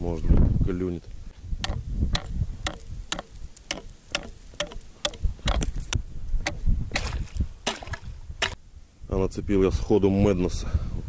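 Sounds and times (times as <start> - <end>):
ice chisel striking ice: 1.6 - 5.7.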